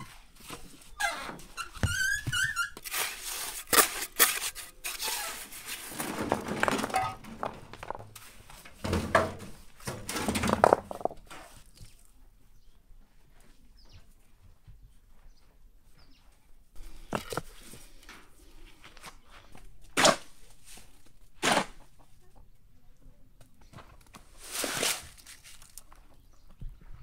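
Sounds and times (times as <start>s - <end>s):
stones knocking and scraping: 2.8s - 12.0s, 16.8s - 18.1s, 23.6s - 26.2s.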